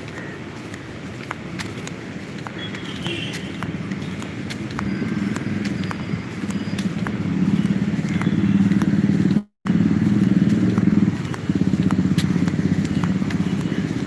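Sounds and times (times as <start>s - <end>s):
road traffic: 0.0s - 14.0s
vehicle engine droning: 3.6s - 14.0s.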